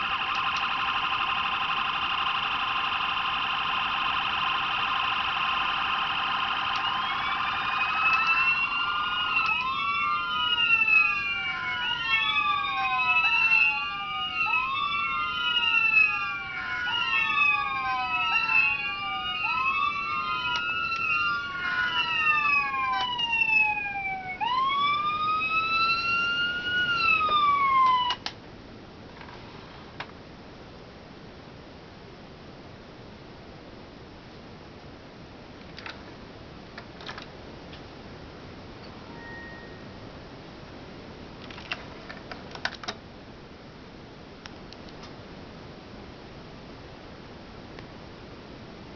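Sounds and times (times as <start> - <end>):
electronic sirens wailing: 0.0 - 28.3, 38.9 - 40.1.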